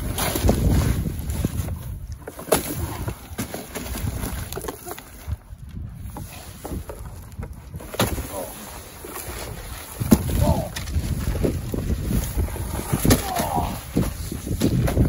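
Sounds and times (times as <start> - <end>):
people wrestling on trampoline: 7.7 - 15.0.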